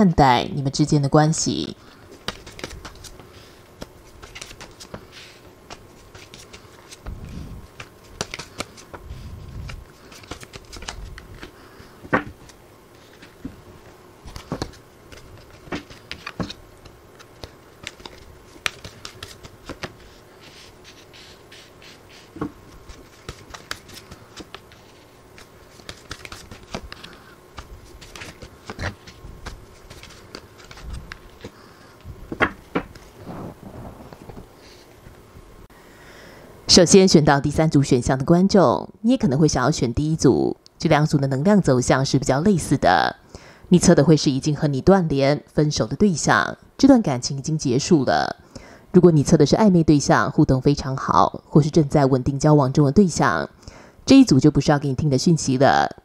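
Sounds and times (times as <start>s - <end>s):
cards shuffling and slapping: 2.1s - 13.6s, 14.2s - 31.6s, 32.3s - 34.5s.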